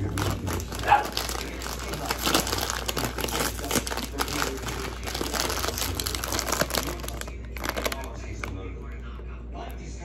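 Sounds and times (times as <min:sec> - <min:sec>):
plastic packet crinkling: 0:00.0 - 0:09.0.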